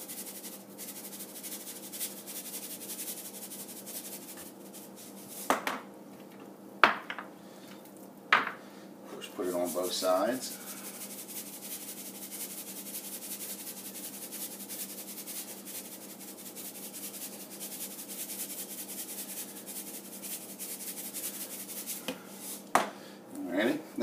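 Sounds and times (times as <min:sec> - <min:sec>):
salt rattling in plastic shaker: 0:00.0 - 0:05.5, 0:09.4 - 0:22.6.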